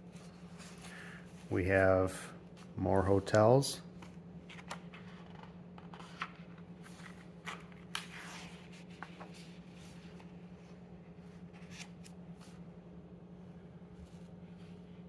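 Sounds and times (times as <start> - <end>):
paper pages rustling: 3.9 - 12.6
page turning: 4.0 - 12.6.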